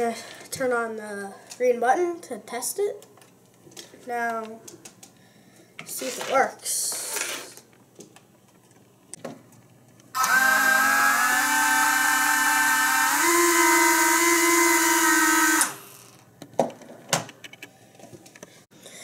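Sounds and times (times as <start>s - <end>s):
toy electric motors whining: 10.2s - 16.2s.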